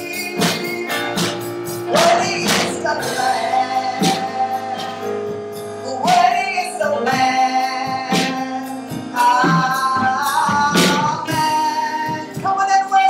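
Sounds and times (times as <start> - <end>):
instrumental accompaniment: 0.0 - 13.0
woman singing: 5.9 - 13.0.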